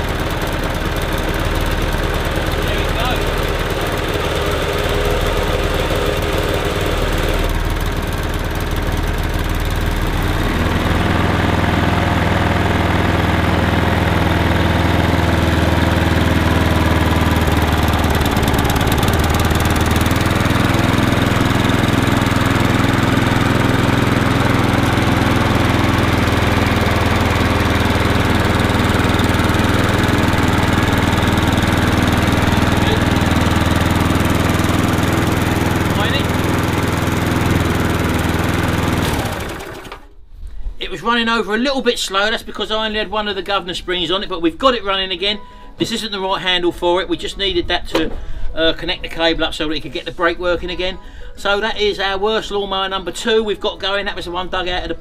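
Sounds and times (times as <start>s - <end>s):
lawnmower engine running: 0.0s - 40.2s.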